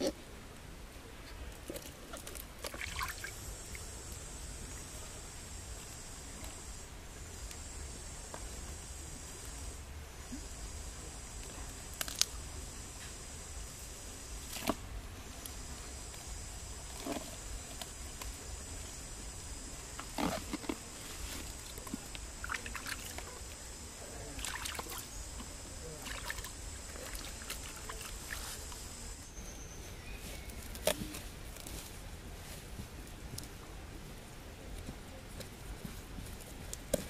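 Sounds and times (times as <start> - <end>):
leaves rustling: 1.0 - 37.0
soft splashes: 1.6 - 3.8, 21.8 - 23.5, 24.3 - 25.1, 25.8 - 28.6.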